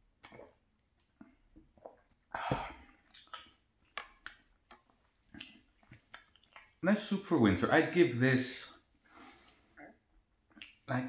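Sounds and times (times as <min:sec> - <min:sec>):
chewing and lip smacks: 0:00.2 - 0:06.8, 0:09.5 - 0:10.9.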